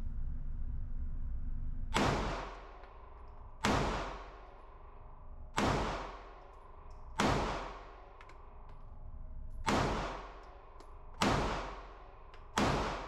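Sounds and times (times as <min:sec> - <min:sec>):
pistol shots echoing indoors: 0:01.9 - 0:08.9, 0:09.6 - 0:13.0.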